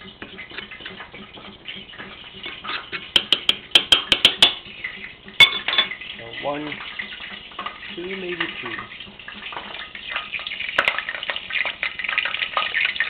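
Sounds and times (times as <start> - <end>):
metal utensil scraping a ceramic bowl: 0.0 - 4.6
sharp taps against a bowl: 3.1 - 4.6.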